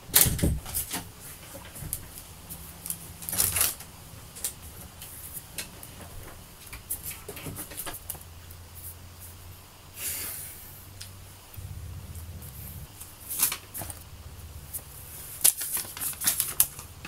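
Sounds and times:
room hum: 0.0s - 17.0s
rustling swishes: 11.6s - 17.0s
small clicks and rustles: 15.4s - 17.0s.

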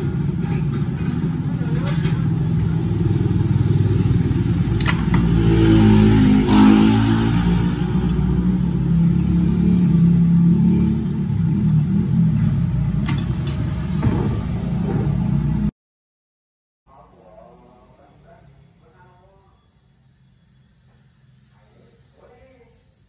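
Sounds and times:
engine revving: 2.2s - 15.7s.

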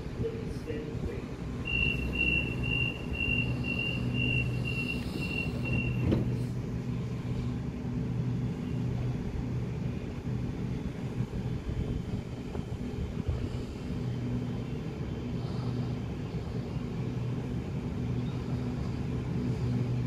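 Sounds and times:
train low electric hum: 0.0s - 20.0s
rapid high warning beeps: 1.6s - 6.1s
train doors thumping shut: 5.6s - 6.5s.

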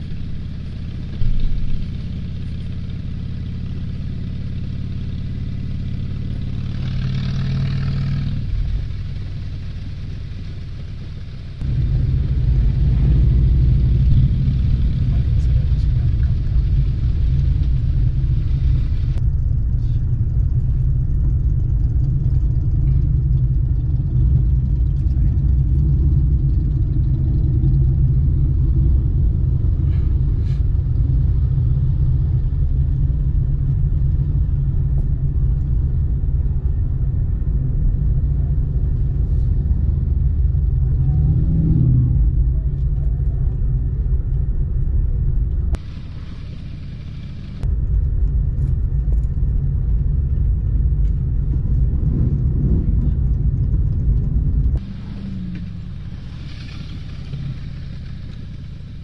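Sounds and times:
car engine and road noise: 0.0s - 59.0s
low tone rising and falling: 1.1s - 29.9s, 36.0s - 48.1s.

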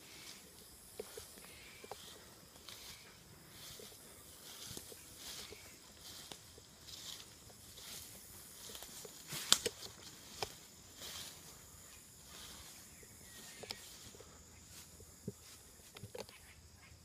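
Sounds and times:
rustling in dry leaves: 0.0s - 16.5s
sharp snaps and clicks: 9.4s - 10.6s.

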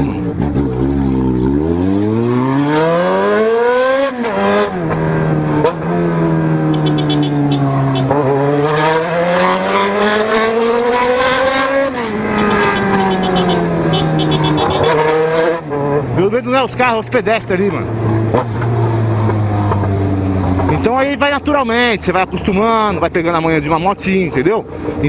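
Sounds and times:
motorcycle engine shifting gears: 0.0s - 16.3s, 17.8s - 21.0s.

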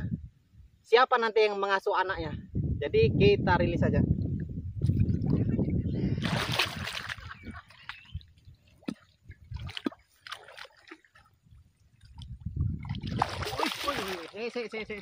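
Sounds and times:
water splashing: 6.2s - 15.0s.

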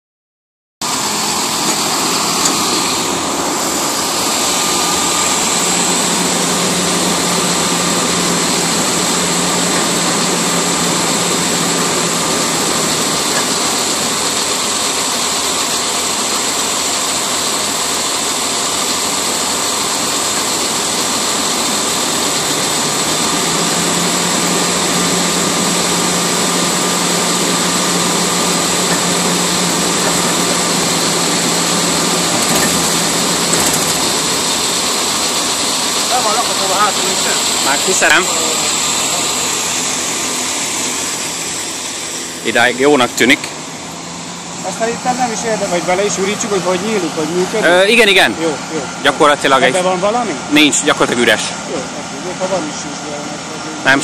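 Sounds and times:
diesel engine running: 0.8s - 54.0s.

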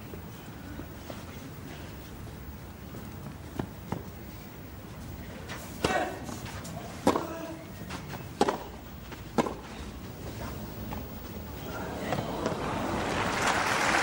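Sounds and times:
tennis ball hits: 7.0s - 7.4s, 8.4s - 9.7s.

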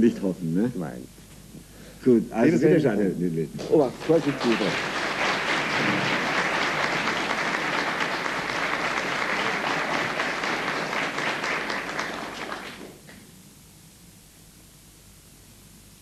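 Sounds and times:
faint hiss: 0.0s - 16.0s
audience applauding: 3.6s - 13.2s.

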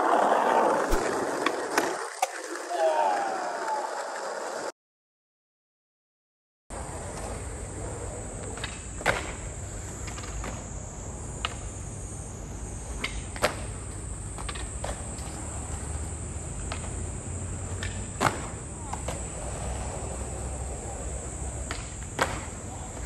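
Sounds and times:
skateboards knocking on concrete: 12.9s - 17.0s, 17.6s - 23.0s.

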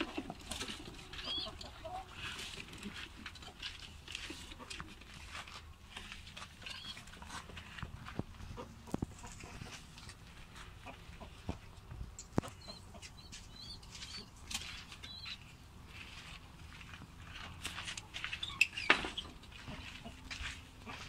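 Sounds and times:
wing flapping and clattering: 0.0s - 10.3s
faint high bird chirps: 6.6s - 7.1s, 15.0s - 15.5s.

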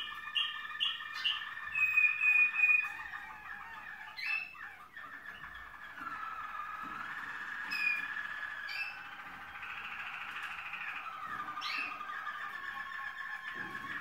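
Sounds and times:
canaries singing rolling song: 0.0s - 14.0s.

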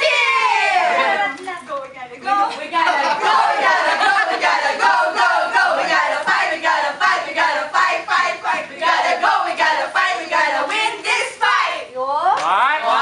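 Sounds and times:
women shouting a cheer: 0.0s - 1.3s.

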